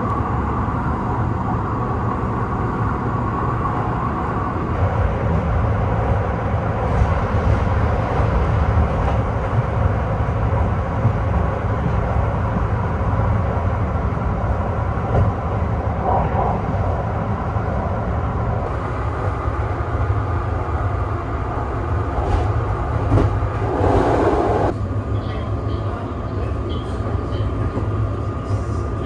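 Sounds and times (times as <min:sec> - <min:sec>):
train wheels rumbling on rails: 0:02.2 - 0:29.0.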